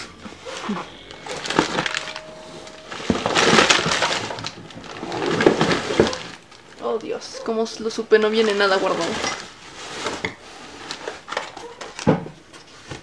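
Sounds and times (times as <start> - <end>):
plastic crinkling: 0.0 - 12.1
objects spilling and clattering: 0.5 - 7.0, 8.3 - 10.2.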